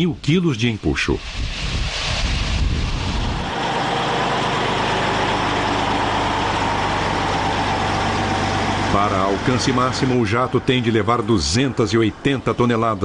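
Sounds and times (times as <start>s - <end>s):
rushing noise: 0.5s - 12.6s
truck diesel engine droning: 2.8s - 13.0s.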